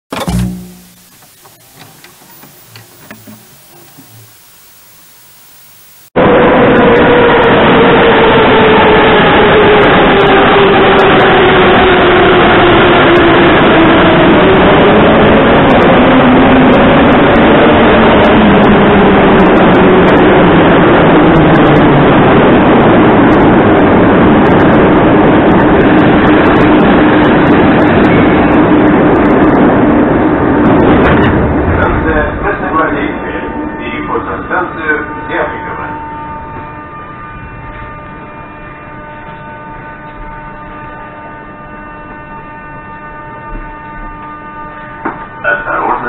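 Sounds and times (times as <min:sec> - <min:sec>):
train wheels rumbling on rails: 0:00.1 - 0:04.4, 0:06.4 - 0:42.5
train motors whining: 0:00.1 - 0:06.1.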